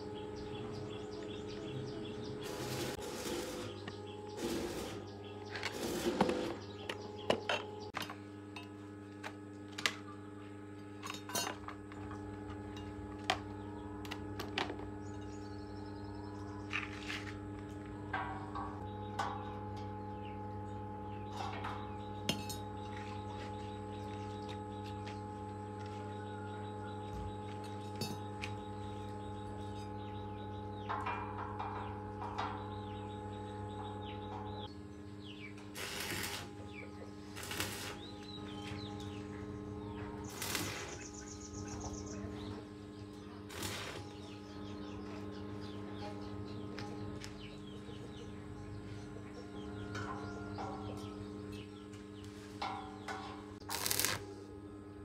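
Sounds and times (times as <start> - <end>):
steady hum: 0.0 - 55.0.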